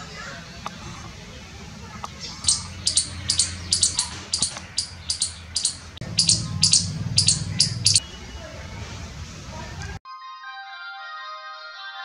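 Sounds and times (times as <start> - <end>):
squirrel chirping: 2.3 - 8.0.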